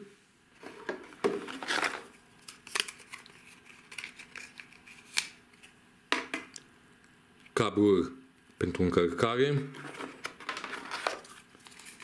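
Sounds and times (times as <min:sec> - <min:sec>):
handling cardboard box and charger: 0:09.7 - 0:12.0.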